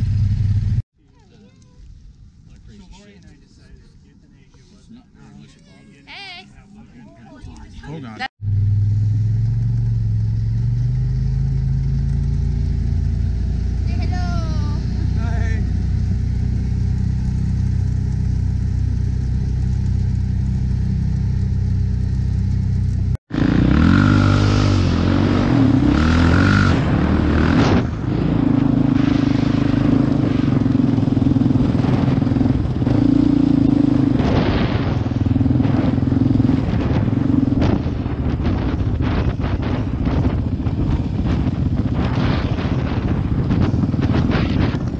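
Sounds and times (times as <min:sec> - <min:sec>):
quad engine revving: 0:00.0 - 0:00.8, 0:08.4 - 0:44.9
car engine and road noise: 0:00.0 - 0:01.2, 0:06.0 - 0:44.9
wind buffeting microphone: 0:24.7 - 0:44.9.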